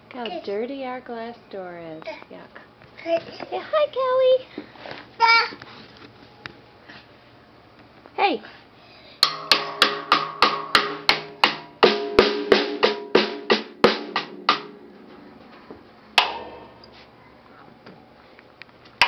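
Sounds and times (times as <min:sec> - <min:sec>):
drumstick striking drum kit: 0:09.2 - 0:17.2.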